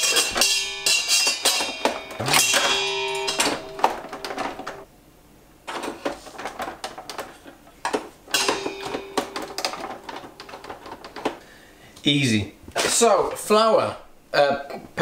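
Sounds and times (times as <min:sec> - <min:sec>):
metal utensils clattering in bowl: 0:00.0 - 0:04.8, 0:05.7 - 0:11.4.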